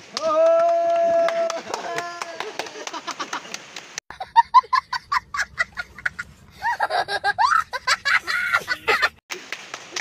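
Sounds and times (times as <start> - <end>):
young child laughing: 4.1 - 9.2.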